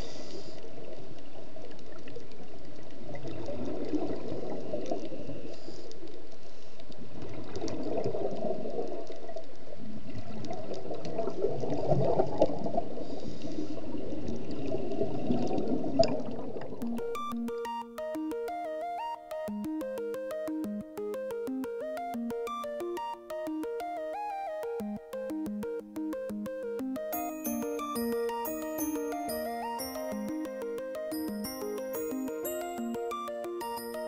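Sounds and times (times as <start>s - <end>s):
electronic music: 16.8s - 34.0s.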